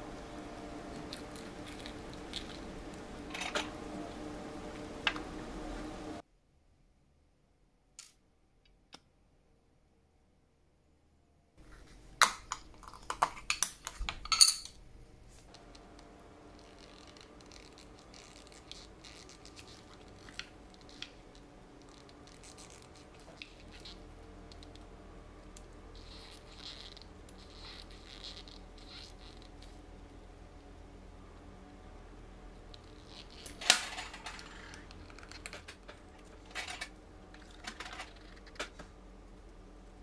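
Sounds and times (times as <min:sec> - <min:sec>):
small metal parts clinking: 0:12.2 - 0:14.8, 0:33.0 - 0:38.7.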